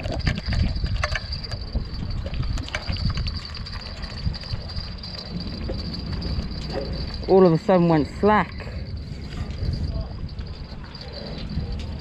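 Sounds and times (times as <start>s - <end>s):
wind rumbling on microphone: 0.0s - 12.0s
steady high-pitched drone: 3.3s - 12.0s.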